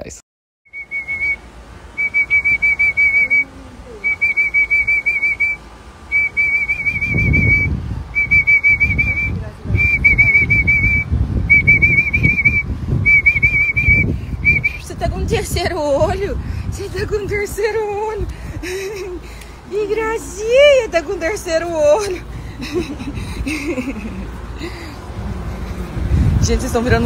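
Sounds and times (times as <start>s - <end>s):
warbling whistle blasts: 0.7s - 14.8s
low rumbling noise: 0.7s - 27.0s.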